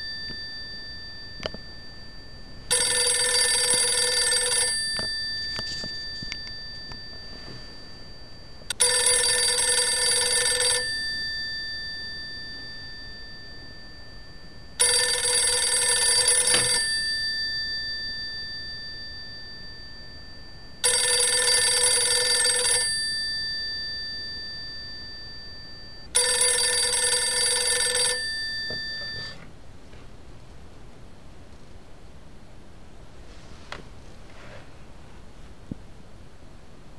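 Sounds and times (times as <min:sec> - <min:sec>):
telephone bell ringing: 0:00.0 - 0:29.5.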